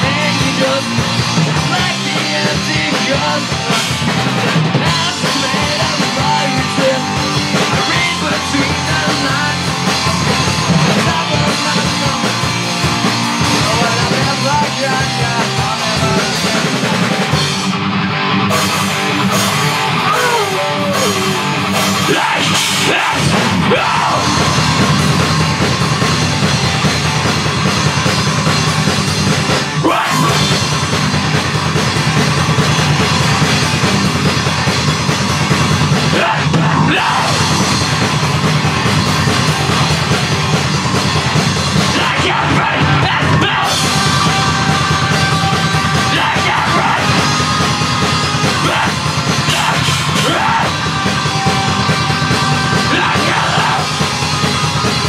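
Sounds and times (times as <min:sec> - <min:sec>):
person singing into microphone: 0:00.0 - 0:03.7, 0:04.8 - 0:09.7, 0:41.9 - 0:54.0
bass guitar: 0:00.0 - 0:55.0
drum kit: 0:00.0 - 0:55.0
electric guitar: 0:00.0 - 0:55.0.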